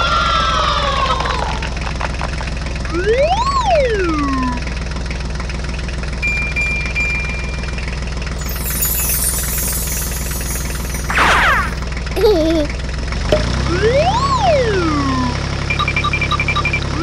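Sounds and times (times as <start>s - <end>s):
diesel engine idling: 4.2s - 8.3s
thin high beep: 8.4s - 11.8s
whistle gliding up and down: 8.4s - 11.8s.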